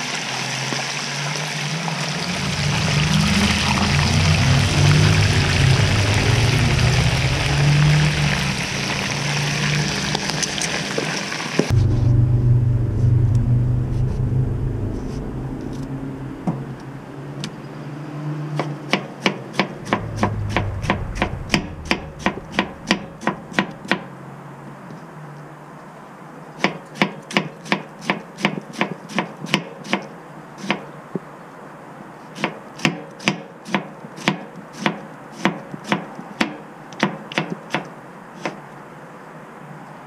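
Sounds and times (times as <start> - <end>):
fish deep-frying in oil: 0.0 - 11.7.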